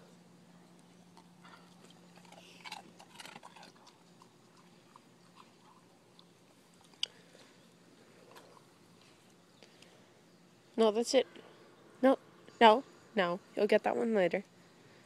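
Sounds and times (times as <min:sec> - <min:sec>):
dog chewing treat crunches: 0:01.0 - 0:07.4.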